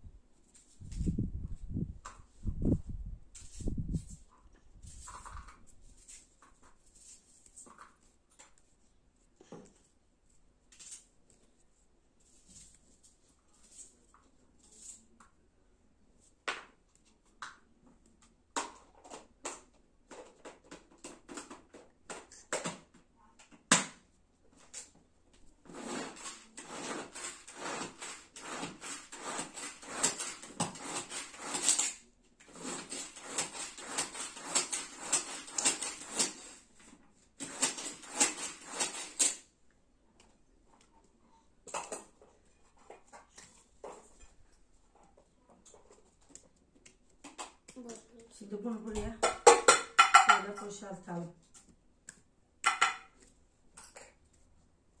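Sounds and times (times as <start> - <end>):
knife cutting vegetables: 25.7 - 36.7, 37.4 - 39.5.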